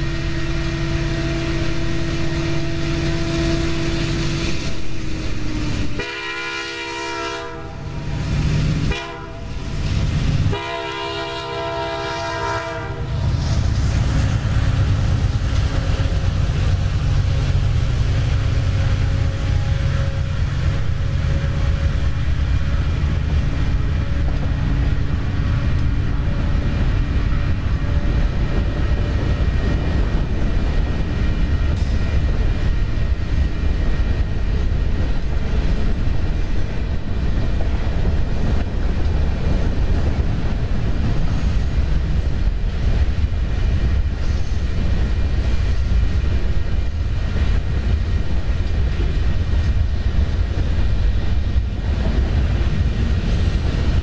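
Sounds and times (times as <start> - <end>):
train rail cars rumbling past: 0.0 - 54.0.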